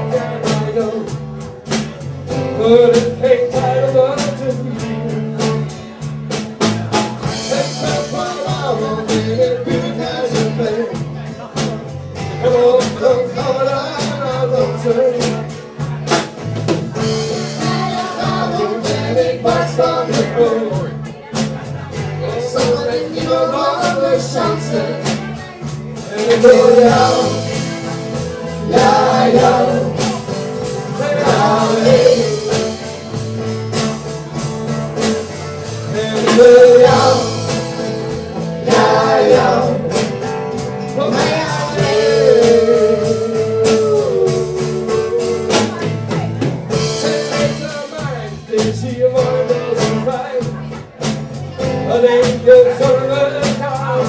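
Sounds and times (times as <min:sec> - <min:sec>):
drums: 0:00.0 - 0:54.0
electric guitar: 0:00.0 - 0:54.0
strummed acoustic guitars: 0:00.0 - 0:54.0
person singing: 0:07.3 - 0:11.1, 0:17.0 - 0:21.0, 0:22.2 - 0:33.2, 0:35.7 - 0:40.3, 0:40.9 - 0:45.9.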